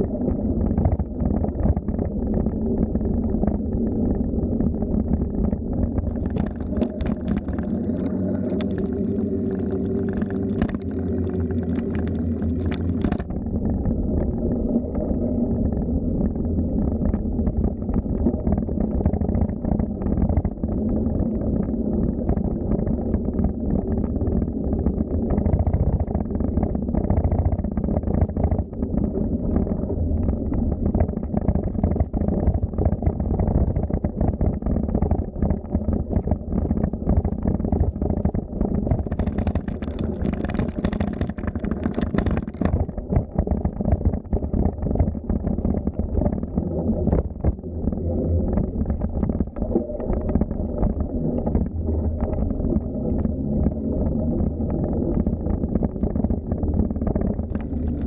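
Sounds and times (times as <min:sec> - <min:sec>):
bicycle rolling with rattles: 0:37.1 - 0:46.5.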